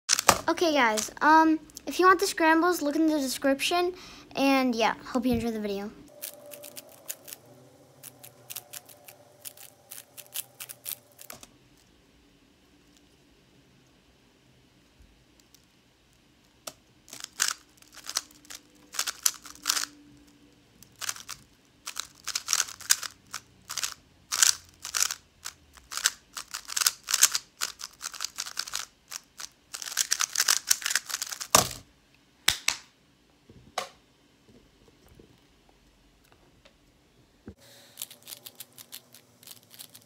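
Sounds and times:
puzzle cube layers clacking: 6.1s - 11.5s, 17.1s - 19.9s, 20.8s - 31.8s, 38.0s - 40.0s.

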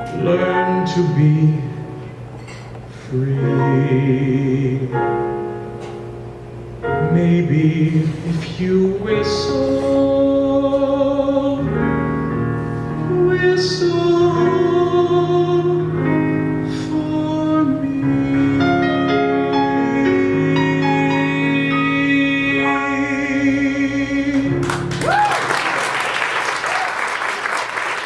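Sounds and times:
piano chords: 0.0s - 28.0s
man singing long notes: 13.0s - 24.9s.

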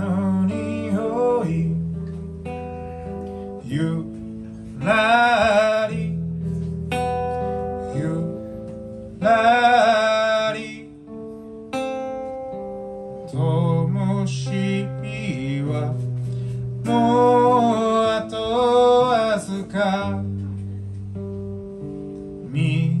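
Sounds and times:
man singing with vibrato: 0.0s - 2.0s, 3.6s - 6.5s, 7.6s - 11.2s, 13.2s - 20.4s, 22.4s - 23.0s
strummed acoustic guitar: 0.0s - 23.0s.

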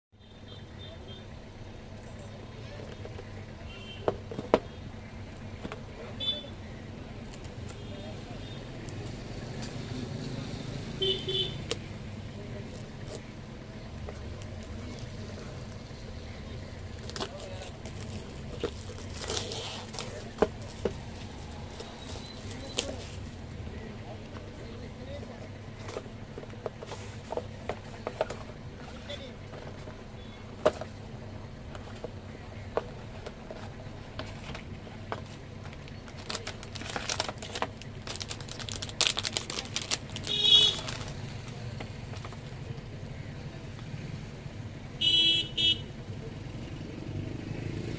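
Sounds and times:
plastic pouch crinkling: 17.0s - 23.2s, 35.7s - 41.5s
cardboard box rustling: 17.0s - 23.3s, 32.8s - 41.5s.

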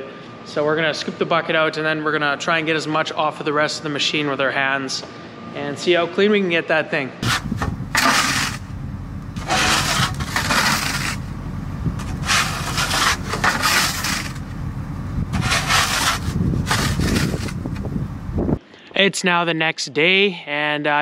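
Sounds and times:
shovel scraping steel bucket: 7.2s - 8.7s, 9.4s - 11.4s, 12.0s - 14.5s, 15.3s - 17.8s
diesel engine idling: 7.3s - 18.5s.

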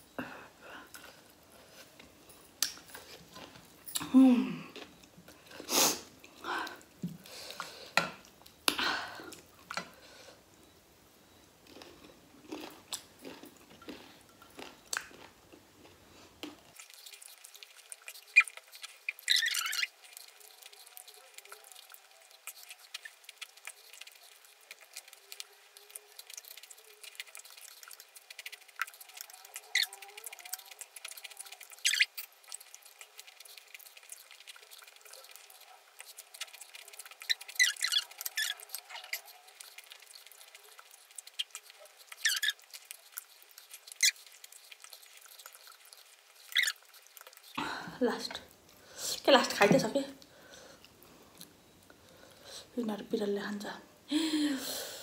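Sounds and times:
person chewing food: 0.8s - 48.8s, 50.2s - 52.5s.

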